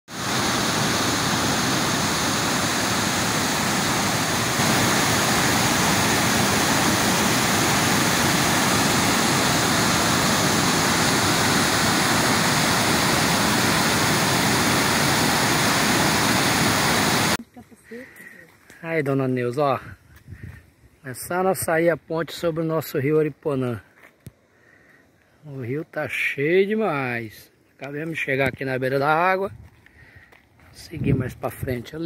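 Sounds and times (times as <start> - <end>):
waterfall rushing: 0.1 - 17.4.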